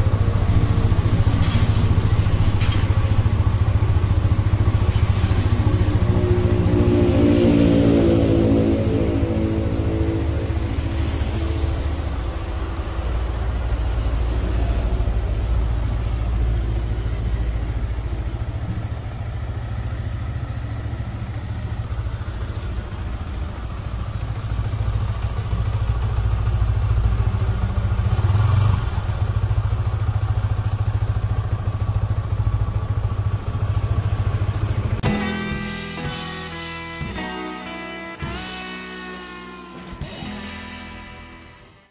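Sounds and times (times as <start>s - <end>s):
swell of noise: 0.0s - 23.2s, 35.0s - 41.9s
motorcycle engine idling: 0.0s - 41.6s.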